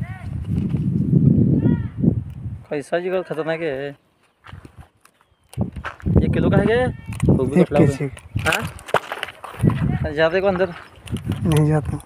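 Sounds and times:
footsteps scuffing on gravel: 4.2s - 6.2s, 8.6s - 11.4s.

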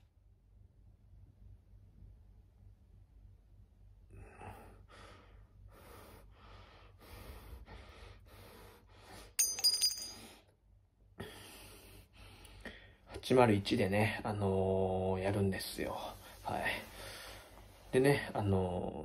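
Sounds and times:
sharp metallic clink: 9.4s - 10.4s
man's breathy huffs: 11.2s - 13.0s.

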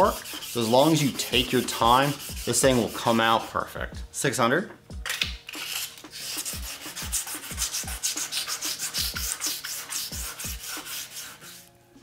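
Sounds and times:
sandpaper rasping on plastic: 0.0s - 3.5s, 5.6s - 11.7s.

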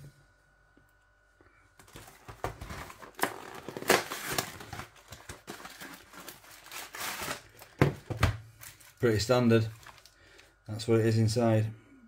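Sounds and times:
cardboard rustling and scraping: 1.8s - 10.1s.

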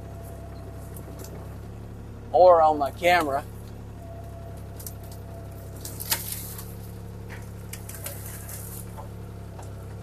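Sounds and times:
diesel engine under load: 0.0s - 10.0s
wood cracking: 4.7s - 9.8s.

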